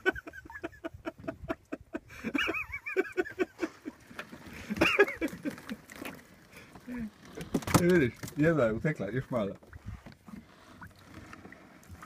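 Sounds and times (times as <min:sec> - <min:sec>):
people laughing: 0:00.0 - 0:04.0, 0:04.6 - 0:05.8.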